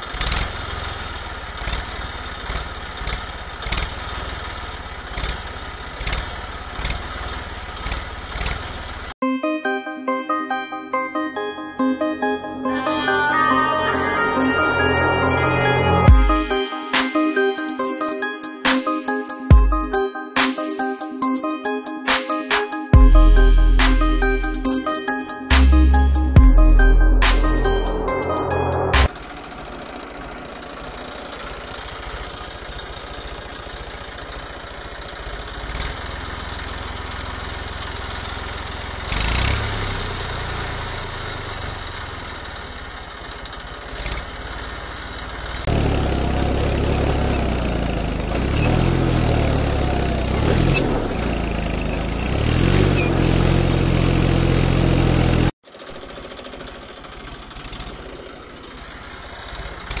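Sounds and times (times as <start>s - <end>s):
tractor engine idling: 43.0s - 55.5s.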